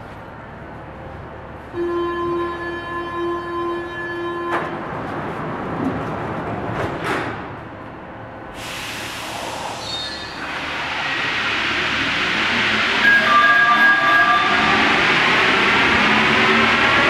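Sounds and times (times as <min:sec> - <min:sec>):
loud train hiss: 0:08.5 - 0:17.0.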